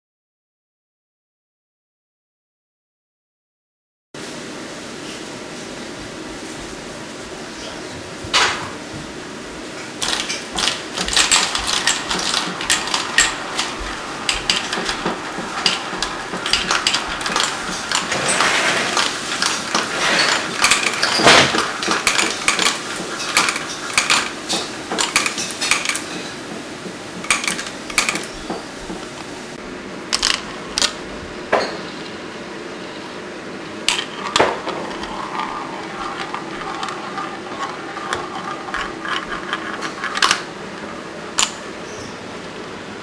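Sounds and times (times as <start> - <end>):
marbles clattering down plastic run: 34.0 - 40.4.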